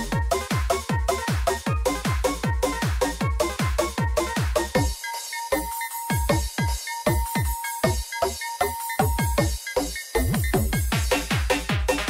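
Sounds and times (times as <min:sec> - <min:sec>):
heavy kick drums: 0:06.1 - 0:08.0, 0:10.2 - 0:12.0.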